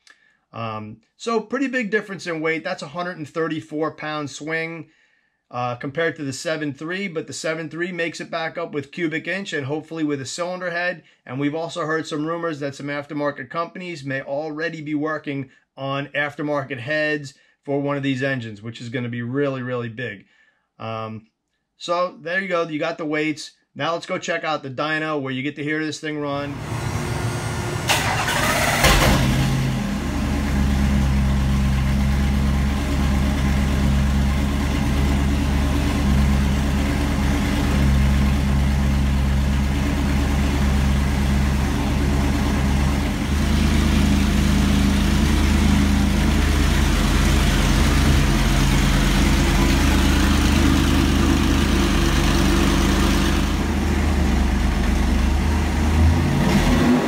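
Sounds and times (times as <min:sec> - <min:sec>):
engine idling: 0:26.5 - 0:56.2.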